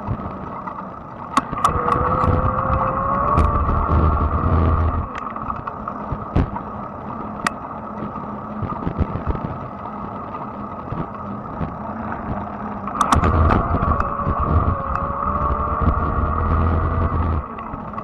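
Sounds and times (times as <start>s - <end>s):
electric bike hum: 0.0s - 18.0s
low rumble: 1.5s - 6.6s, 11.6s - 18.0s.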